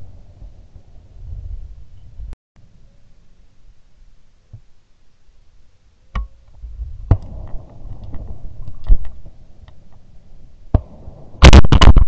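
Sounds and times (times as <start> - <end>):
shotgun blasts: 10.7 - 12.0.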